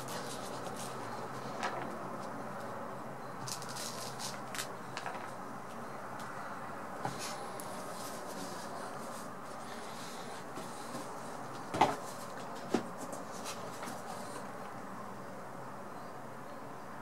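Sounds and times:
album handling noises: 0:03.4 - 0:05.4.

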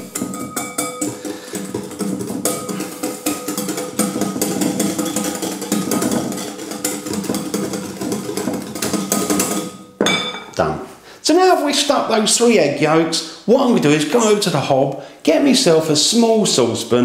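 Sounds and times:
whisk clattering in glass bowl: 0:00.0 - 0:10.4.

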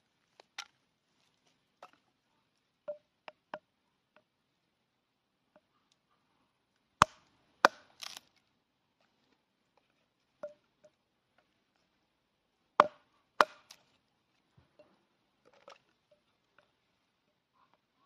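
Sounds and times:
tomahawk chopping wood: 0:07.0 - 0:08.3, 0:12.8 - 0:13.8.

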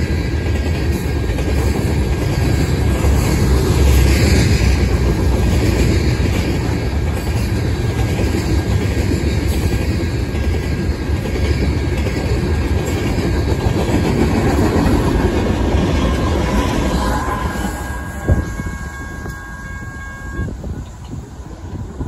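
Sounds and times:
freight train wheels clattering: 0:00.0 - 0:22.0
locomotive rumble: 0:00.0 - 0:22.0.

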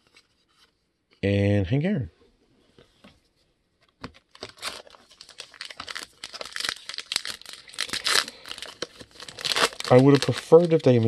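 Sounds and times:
wrapper tearing and crinkling: 0:04.2 - 0:11.0.

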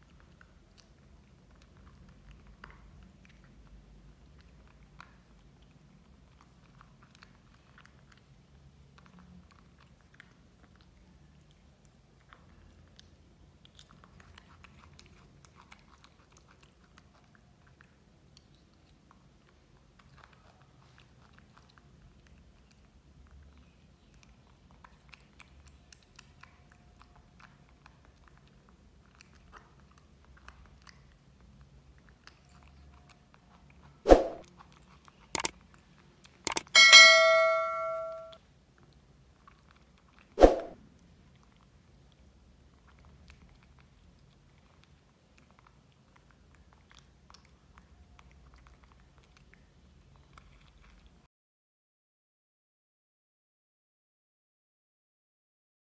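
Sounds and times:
monkey chewing and smacking: 0:00.1 - 0:36.7
mouse clicks: 0:36.5 - 0:38.3
bell ding: 0:36.5 - 0:38.4.

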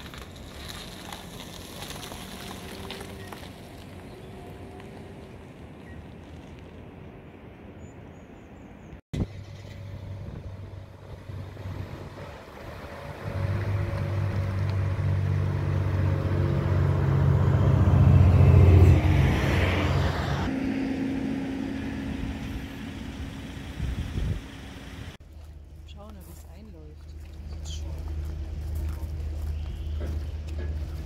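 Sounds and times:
coach diesel engine passing: 0:09.2 - 0:31.0.

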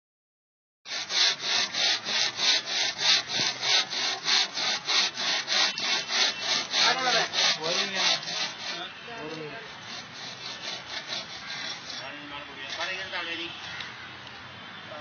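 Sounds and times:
crosscut saw rasping through wood: 0:00.9 - 0:13.2.

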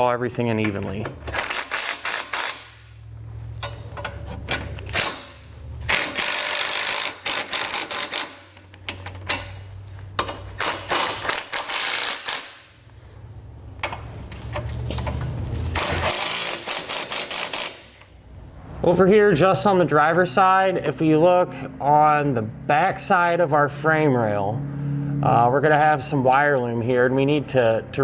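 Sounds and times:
impact driver whirring and hammering: 0:01.2 - 0:02.9, 0:04.8 - 0:08.8, 0:10.6 - 0:12.8, 0:15.7 - 0:18.1.

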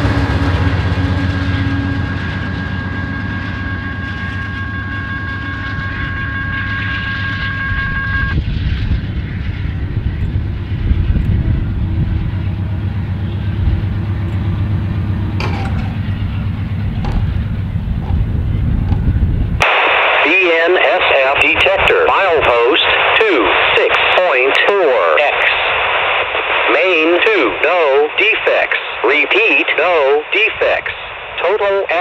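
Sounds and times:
freight train wheels clattering: 0:09.4 - 0:19.6.

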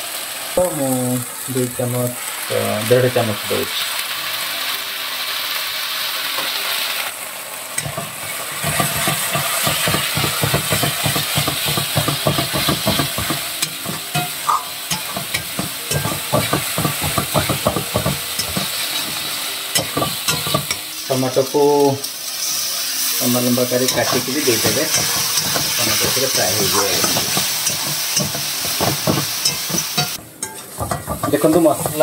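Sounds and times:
spices sizzling in oil: 0:00.0 - 0:32.0.

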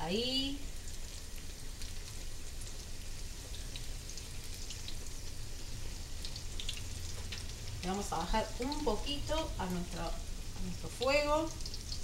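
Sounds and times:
fritters sizzling in hot oil: 0:00.0 - 0:12.0.

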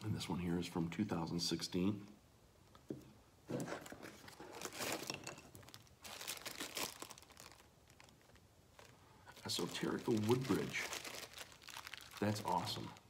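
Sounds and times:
packaging crinkling and rustling: 0:03.5 - 0:13.0.

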